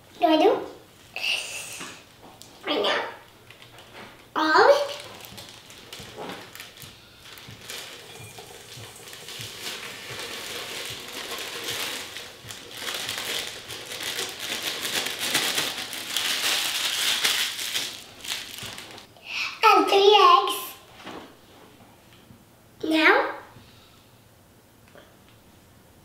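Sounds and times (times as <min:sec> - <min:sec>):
plastic bag crinkling: 0:03.2 - 0:19.1.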